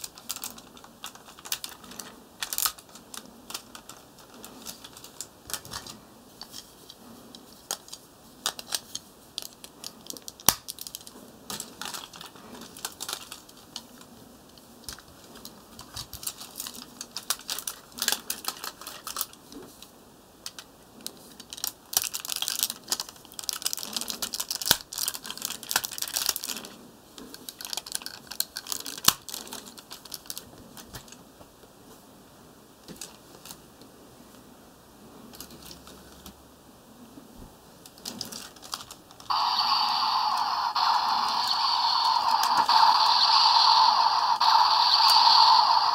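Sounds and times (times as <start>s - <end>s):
plastic toy clicks and rattles: 0.0s - 6.7s, 7.7s - 14.0s, 14.8s - 19.3s, 27.4s - 30.4s, 37.9s - 45.9s.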